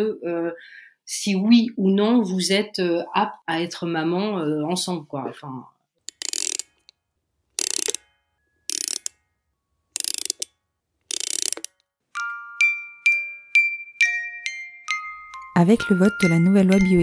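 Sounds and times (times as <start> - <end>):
bell-like chiming melody: 12.2 - 17.0.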